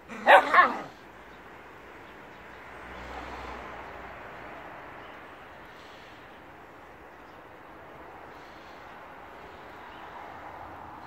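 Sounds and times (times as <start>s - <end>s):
puppy play-growl: 0.1s - 1.0s.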